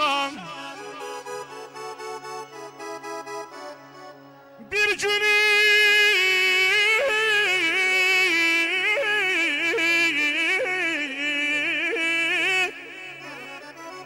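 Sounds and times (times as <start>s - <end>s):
man singing wordless melisma: 0.0s - 2.5s, 4.6s - 14.0s
music: 0.0s - 14.0s.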